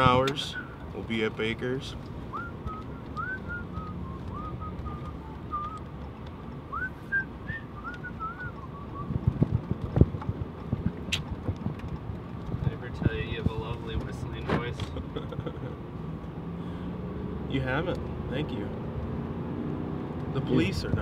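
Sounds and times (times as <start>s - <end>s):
road rumble: 0.0s - 21.0s
person whistling a tune: 2.3s - 5.9s, 6.7s - 9.2s.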